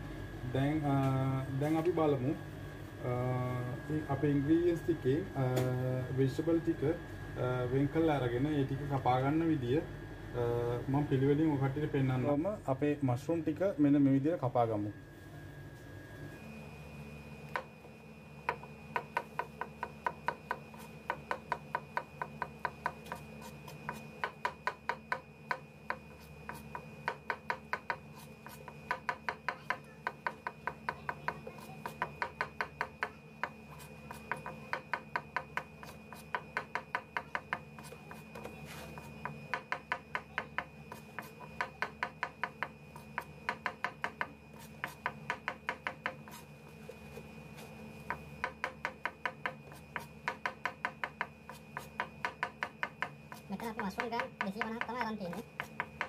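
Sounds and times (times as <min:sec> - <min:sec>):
knife tapping cutting board: 0:53.9 - 0:56.0.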